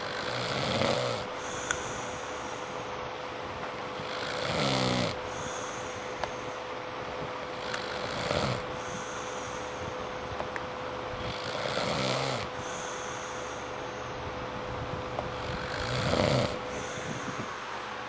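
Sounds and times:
man snoring: 0.0s - 2.8s, 4.0s - 6.4s, 7.5s - 9.9s, 11.2s - 13.7s, 15.3s - 17.5s.

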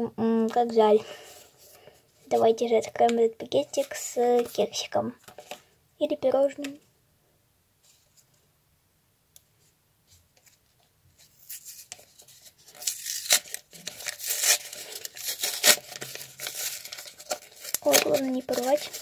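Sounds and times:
paper crinkling and tearing: 11.3s - 19.0s.

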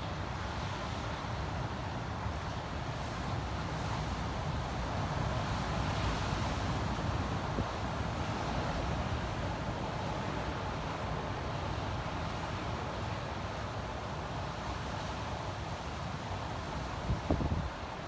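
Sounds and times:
wind buffeting microphone: 17.1s - 17.9s.

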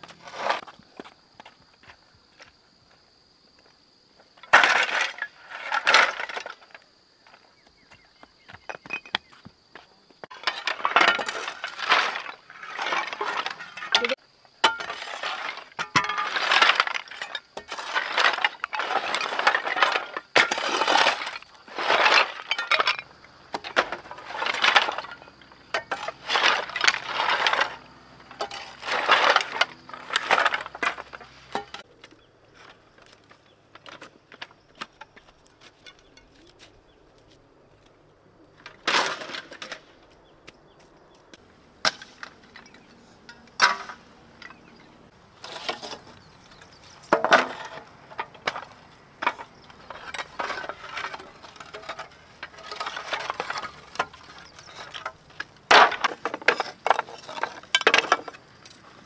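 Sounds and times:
roofing sheets clattering: 4.4s - 6.8s, 10.2s - 31.8s, 38.6s - 40.0s, 41.8s - 44.8s, 45.4s - 58.4s
shovel scraping shards: 4.4s - 6.8s, 10.3s - 31.9s, 38.6s - 39.8s, 41.8s - 58.8s.

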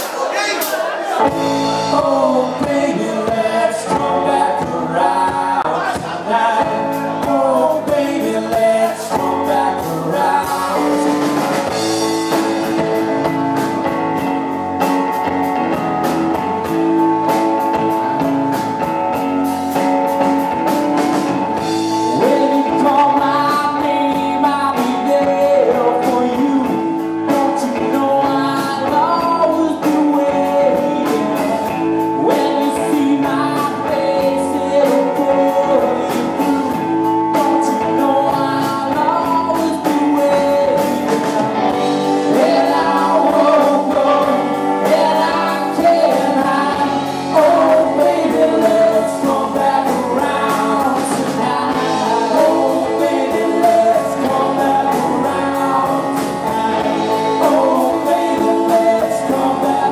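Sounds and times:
steady drum beat: 0.0s - 59.9s
man singing into microphone: 0.1s - 11.9s, 22.0s - 59.9s
electric guitar: 1.2s - 59.9s.

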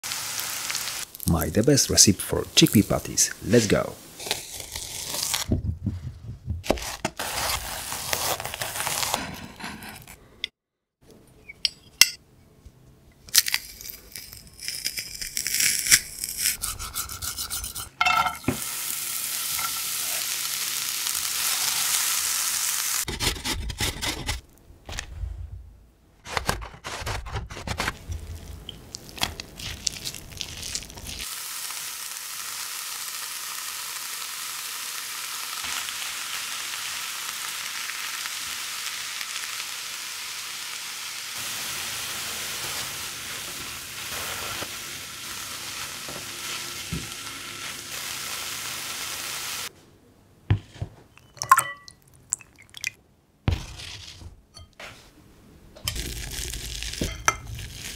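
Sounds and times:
onion sizzling in frying pan: 0.0s - 1.5s, 2.4s - 5.5s, 13.4s - 16.5s, 18.4s - 23.1s, 28.2s - 49.7s, 55.9s - 57.9s.

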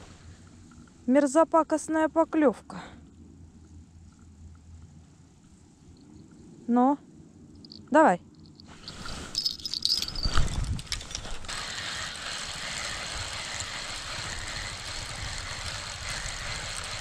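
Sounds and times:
fishing reel gear whir: 8.8s - 17.0s.

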